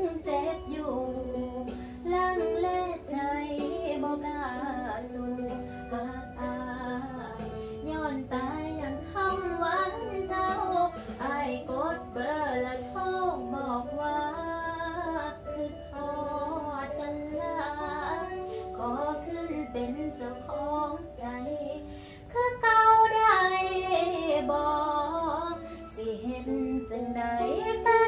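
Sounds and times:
woman singing: 0:00.0 - 0:28.0.

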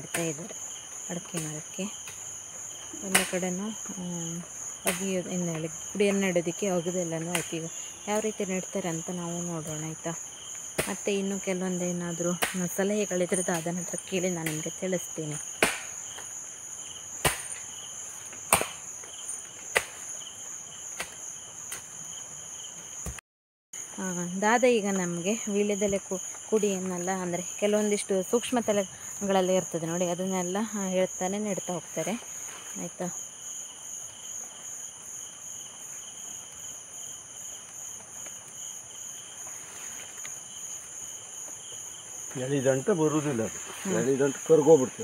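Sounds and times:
insects trilling: 0:00.0 - 0:23.2, 0:23.8 - 0:45.0
digging tool striking soil: 0:17.2 - 0:17.6, 0:18.5 - 0:18.8.

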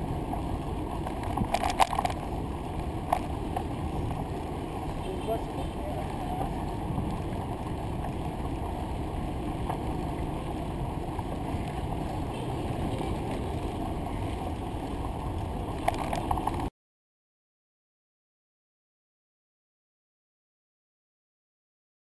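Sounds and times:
road rumble: 0:00.0 - 0:16.7
wind on microphone: 0:00.0 - 0:16.7.

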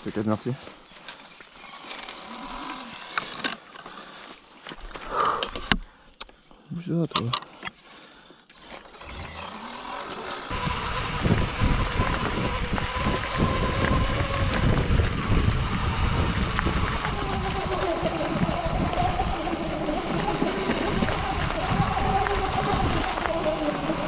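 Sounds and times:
electric motor whine: 0:01.3 - 0:03.6, 0:08.6 - 0:24.0
tyres rushing on dirt: 0:09.0 - 0:24.0.

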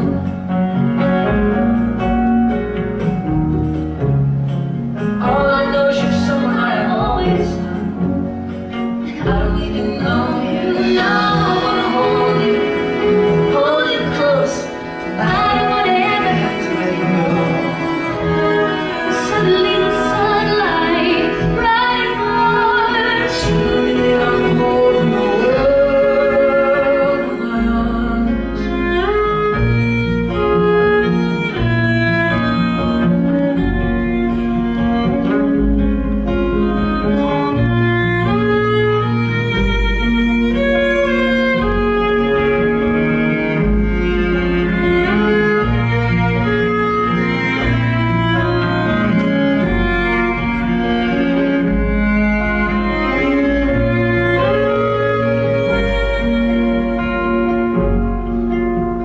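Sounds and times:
bowed string melody: 0:00.0 - 0:59.0
deep bass notes: 0:00.0 - 0:59.0.

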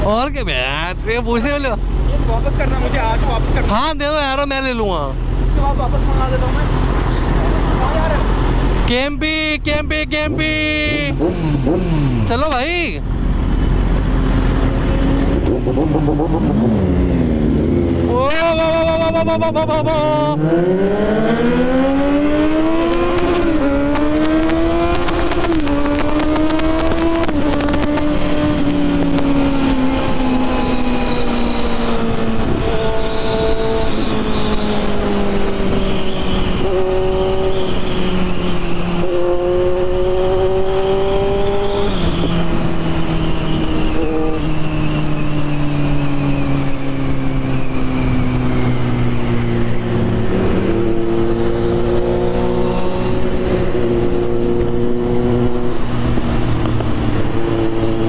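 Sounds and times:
motorcycle cruising: 0:00.0 - 0:58.0
motorcycle engine accelerating: 0:10.0 - 0:58.0.

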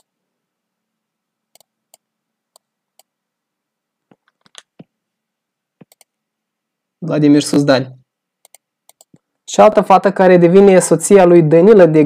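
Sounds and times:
computer mouse clicks: 0:01.5 - 0:03.1, 0:04.1 - 0:04.9, 0:05.8 - 0:06.2, 0:08.4 - 0:09.3.

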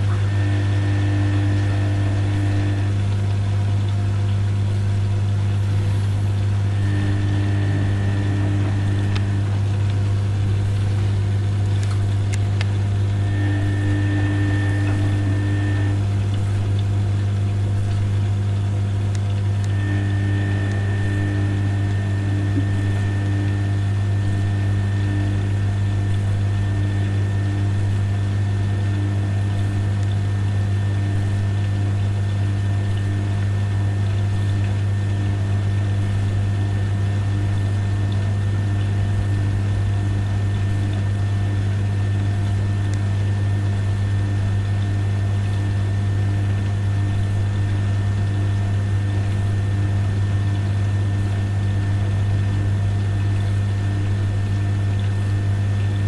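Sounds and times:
washing machine humming: 0:00.0 - 0:56.0
pulsing tone: 0:06.7 - 0:09.5, 0:13.2 - 0:16.1, 0:19.7 - 0:25.7.

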